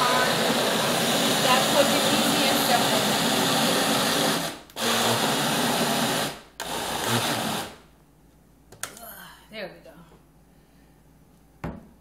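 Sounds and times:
blender motor running: 0.0 - 7.8.

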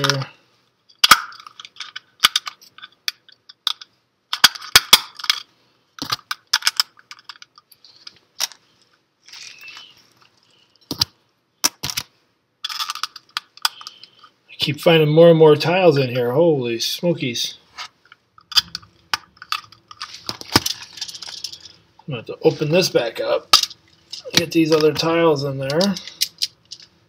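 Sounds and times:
plastic parts clicking together: 0.9 - 8.6, 9.6 - 14.3, 25.7 - 26.9
faint handling rustle: 7.7 - 10.9.

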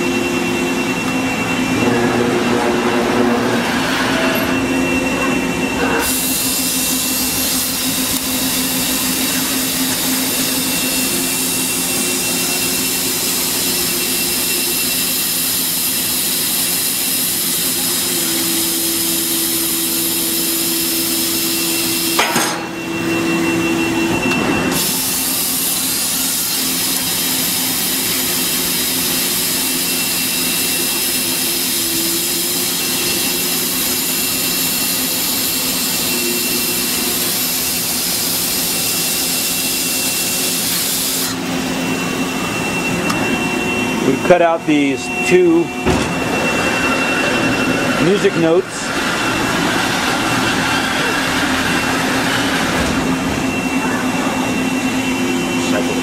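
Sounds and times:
low hum: 0.0 - 6.0
high whine: 0.0 - 56.0
laser cutting machine hiss: 0.0 - 56.0.

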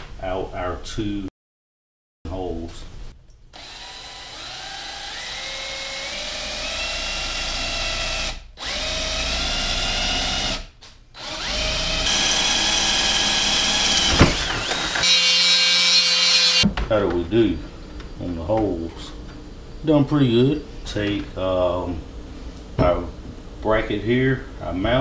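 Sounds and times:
cordless drill boring through steel: 3.6 - 16.6.

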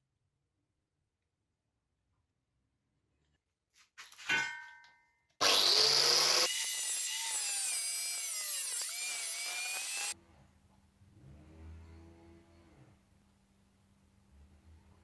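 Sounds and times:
short metallic clink: 4.3 - 5.1
angle grinder cutting metal: 5.4 - 10.2.

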